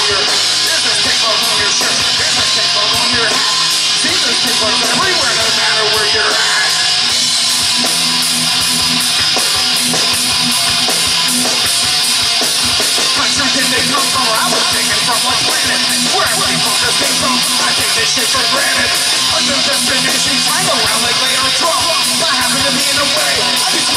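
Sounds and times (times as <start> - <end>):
person singing into a microphone: 0.0 - 7.1, 13.0 - 23.9
bass guitar: 0.0 - 23.9
drum kit: 0.0 - 23.9
electric guitar: 0.0 - 23.9.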